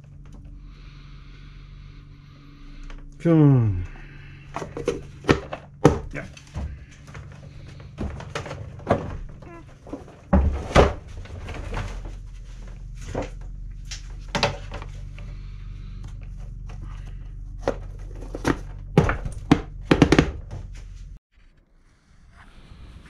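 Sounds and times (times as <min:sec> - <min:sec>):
steady low hum: 0:00.0 - 0:21.2
plastic parts knocking and clicking: 0:04.5 - 0:11.9, 0:14.3 - 0:14.9, 0:17.6 - 0:20.7.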